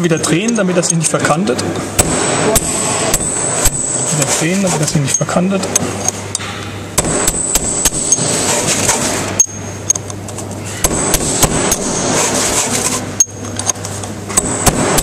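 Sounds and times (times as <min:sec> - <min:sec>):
hammer striking metal drift: 0:02.0 - 0:05.2, 0:06.3 - 0:09.7, 0:10.7 - 0:13.3.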